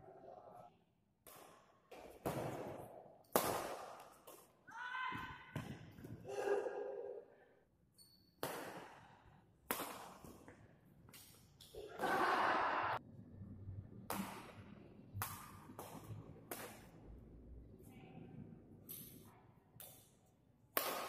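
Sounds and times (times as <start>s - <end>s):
racket hitting shuttlecock: 1.2s - 4.5s, 8.4s - 12.2s, 14.1s - 17.0s, 20.7s - 21.0s.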